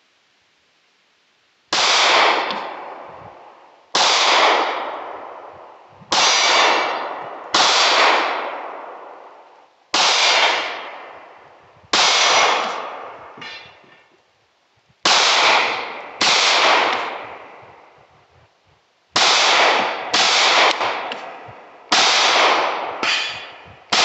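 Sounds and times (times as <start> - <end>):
handgun shots with echo: 12.0 - 13.6, 19.2 - 24.0.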